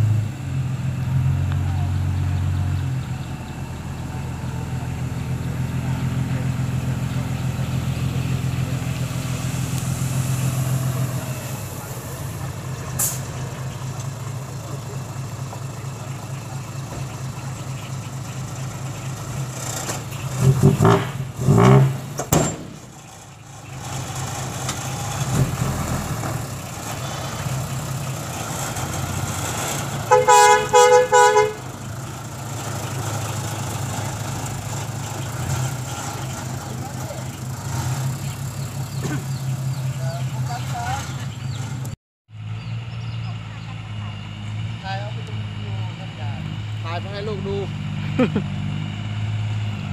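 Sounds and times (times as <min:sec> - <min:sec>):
diesel truck engine running: 0:00.0 - 0:49.9
truck horn toots: 0:29.9 - 0:31.9.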